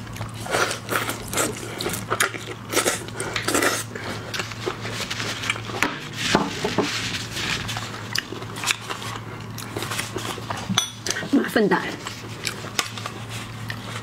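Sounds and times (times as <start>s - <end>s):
person chewing wetly: 0.0s - 5.8s, 7.7s - 11.2s, 12.0s - 13.9s.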